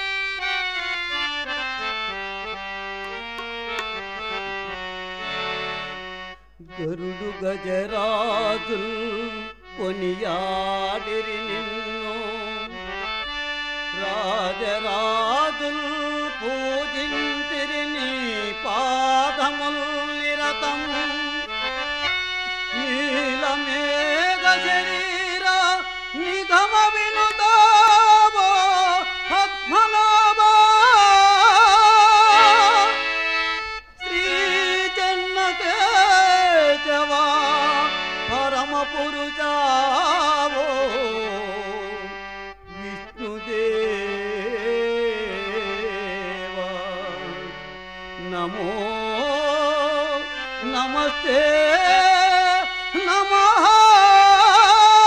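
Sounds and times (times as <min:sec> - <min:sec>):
harmonium melody: 0:00.0 - 0:55.0.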